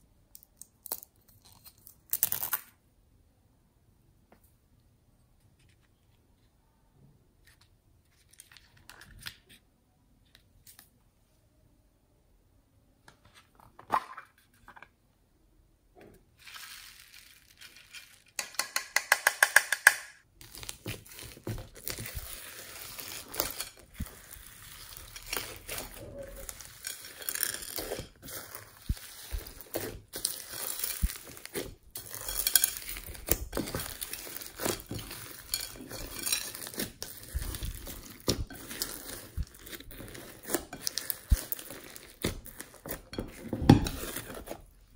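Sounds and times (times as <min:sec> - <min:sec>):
plastic toy clicking: 0:18.4 - 0:20.2
slime crackling and squelching: 0:20.4 - 0:44.9.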